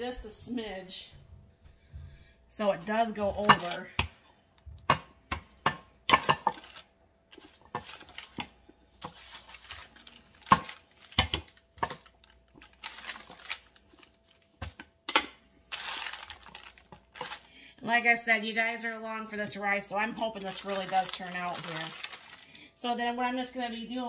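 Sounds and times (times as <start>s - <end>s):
paper rustling: 6.5s - 14.8s, 15.7s - 17.5s, 20.4s - 22.5s.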